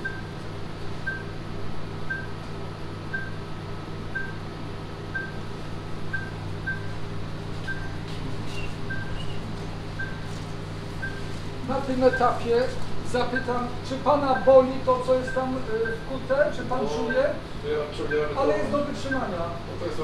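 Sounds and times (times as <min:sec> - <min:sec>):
heart monitor beeping: 0:00.0 - 0:00.3, 0:01.0 - 0:01.4, 0:02.1 - 0:02.4, 0:03.1 - 0:03.4, 0:04.1 - 0:04.4, 0:05.1 - 0:05.5, 0:06.1 - 0:07.0, 0:07.6 - 0:09.4, 0:10.0 - 0:10.4, 0:11.0 - 0:11.4, 0:12.0 - 0:12.4, 0:13.3 - 0:13.6, 0:15.2 - 0:16.2
low equipment hum: 0:00.0 - 0:20.0.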